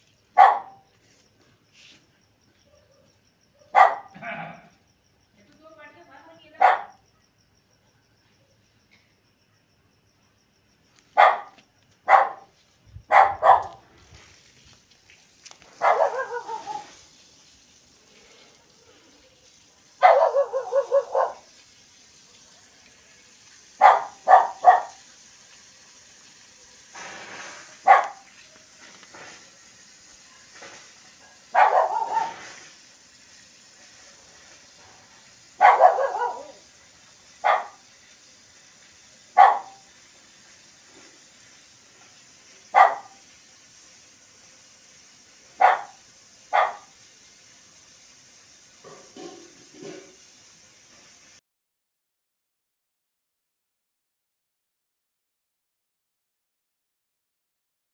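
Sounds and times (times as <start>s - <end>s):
dog barking: 0.4s - 0.8s, 2.6s - 4.6s, 6.6s - 7.0s, 11.2s - 12.5s, 13.1s - 13.8s, 15.8s - 16.9s, 20.0s - 21.5s, 23.8s - 25.0s, 27.8s - 28.3s, 31.3s - 32.6s, 35.6s - 36.6s, 37.4s - 37.8s, 39.4s - 39.8s, 42.7s - 43.2s, 45.6s - 46.9s.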